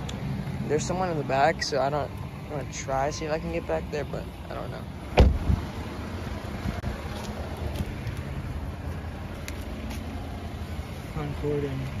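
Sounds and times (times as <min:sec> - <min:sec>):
vehicle motor rumbling: 0:00.0 - 0:12.0
loud thump: 0:05.2 - 0:05.6.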